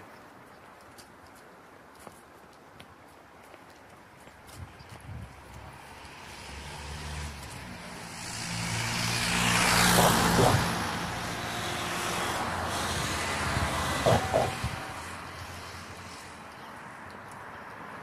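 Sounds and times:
car passing: 5.4 - 18.0.

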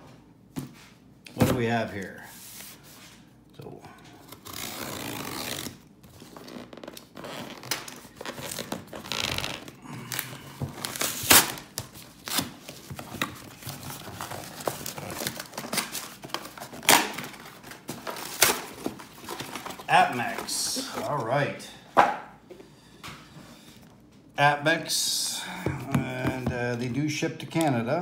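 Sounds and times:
knife cutting packing tape: 4.2 - 9.7
tape and cardboard tearing: 4.2 - 9.7, 10.8 - 13.3.

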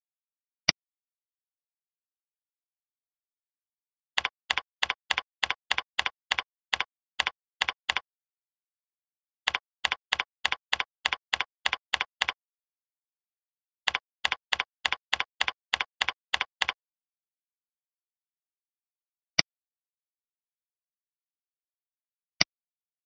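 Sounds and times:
keyboard keystroke clicks: 4.2 - 8.0, 9.5 - 12.4, 13.9 - 16.8.

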